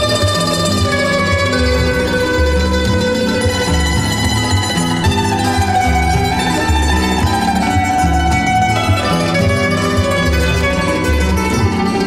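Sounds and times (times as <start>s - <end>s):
bass line: 0.0s - 12.0s
plucked acoustic strings: 0.0s - 12.0s.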